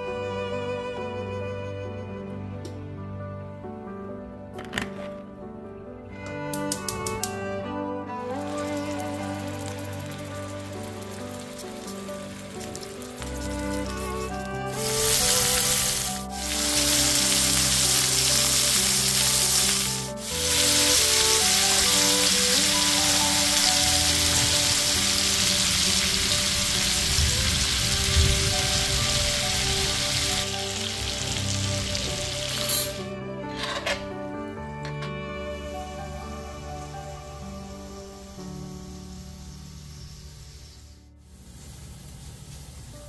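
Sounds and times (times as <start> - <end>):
background music: 0.0 - 43.0
steak sizzling in oil: 8.3 - 33.0, 36.0 - 43.0.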